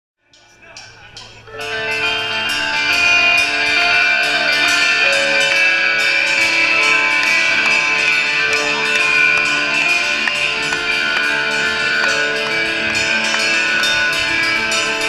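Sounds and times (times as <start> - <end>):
electric guitar chords: 0.8 - 15.0.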